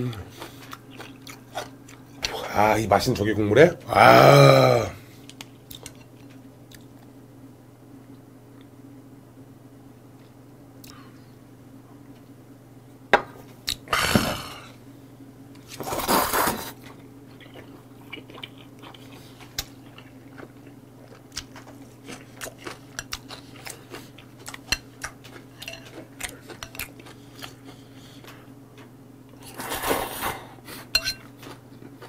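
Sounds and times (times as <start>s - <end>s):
low steady hum: 0.0s - 32.0s
person slurping noodles: 29.4s - 30.5s.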